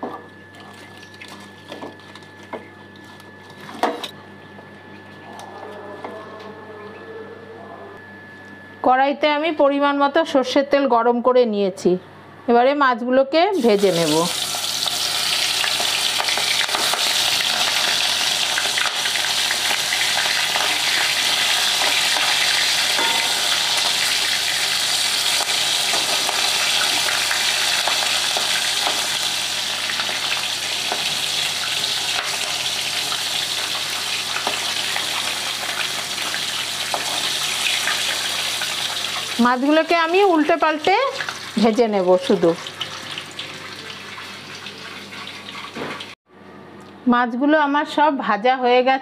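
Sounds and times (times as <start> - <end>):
prawns sizzling in hot oil: 13.5 - 46.2.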